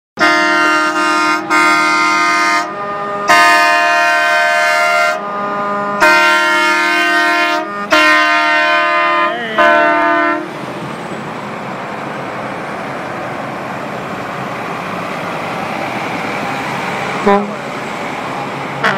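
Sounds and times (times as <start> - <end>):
truck air horns blasting: 0.2 - 10.6, 17.1 - 17.7.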